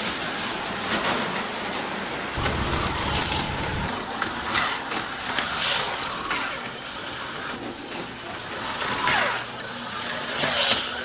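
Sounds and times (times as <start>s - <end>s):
slot cars whirring past: 0.2s - 9.0s.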